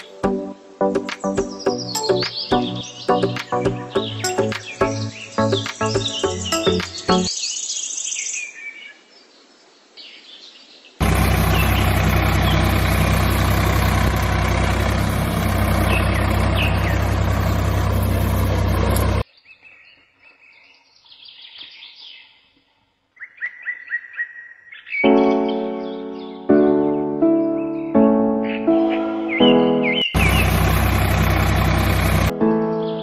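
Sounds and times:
small birds chirping: 0:01.1 - 0:33.0
engine-like running noise: 0:11.0 - 0:19.2, 0:30.2 - 0:32.3.

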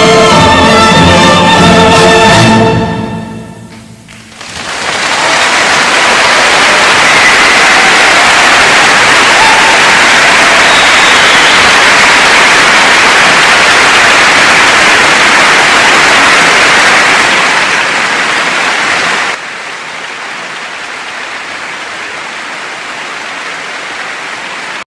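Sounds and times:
stadium crowd cheering: 0:04.1 - 0:24.9.

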